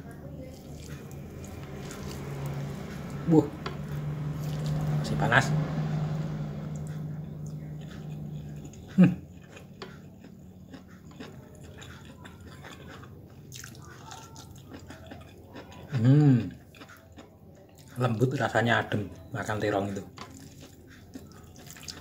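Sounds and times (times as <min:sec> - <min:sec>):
low hum: 0:00.0 - 0:10.7
person chewing food: 0:00.0 - 0:22.0.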